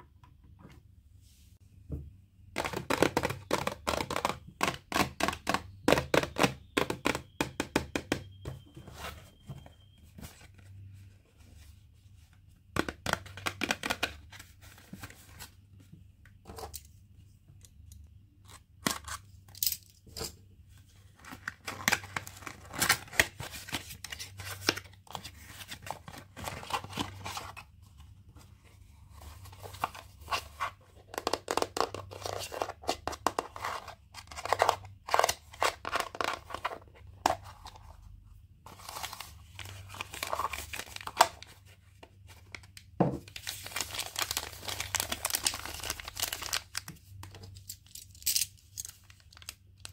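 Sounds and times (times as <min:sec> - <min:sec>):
packaging tearing and crinkling: 0:43.4 - 0:46.8.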